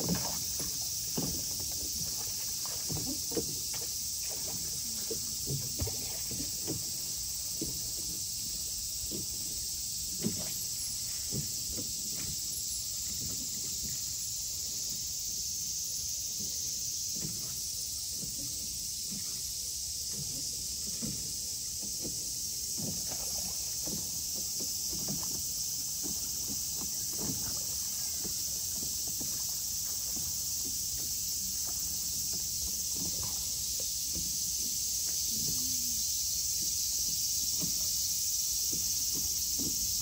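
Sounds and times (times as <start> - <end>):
cicadas droning: 0.0 - 40.0.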